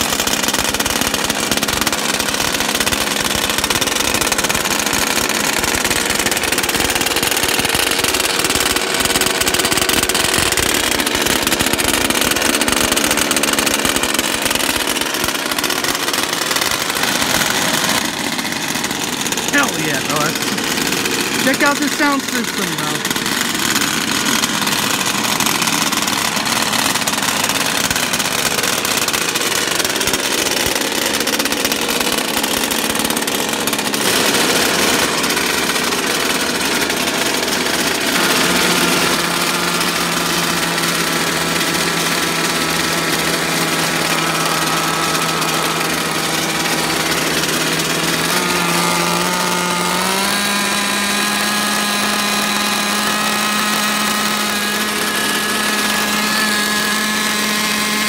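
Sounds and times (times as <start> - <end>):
small two-stroke engine running: 0.0 - 58.0.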